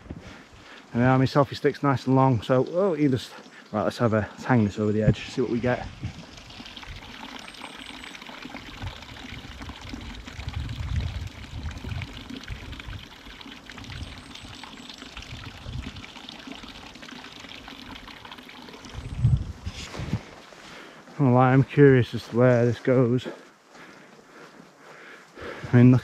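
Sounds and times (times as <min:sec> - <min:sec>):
wind buffeting microphone: 0:05.0 - 0:07.1, 0:08.8 - 0:13.1, 0:15.2 - 0:16.0, 0:18.9 - 0:20.3.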